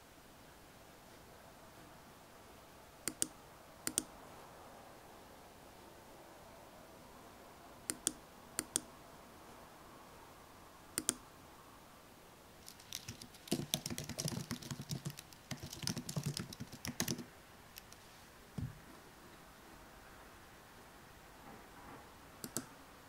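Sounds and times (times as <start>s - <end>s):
keyboard typing: 3.1s - 3.3s, 3.9s - 4.1s, 11.0s - 11.2s, 12.6s - 18.0s, 22.4s - 22.7s
mouse clicks: 3.1s - 3.3s, 3.9s - 4.1s, 7.9s - 8.9s, 11.0s - 11.2s, 22.4s - 22.7s.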